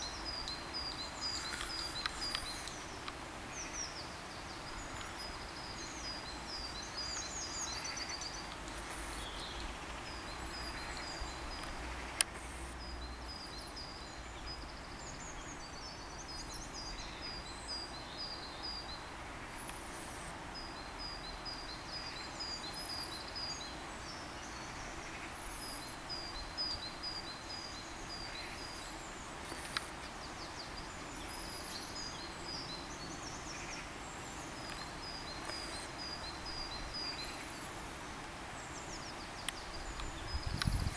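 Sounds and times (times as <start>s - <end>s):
songbirds singing: 0.0s - 40.9s.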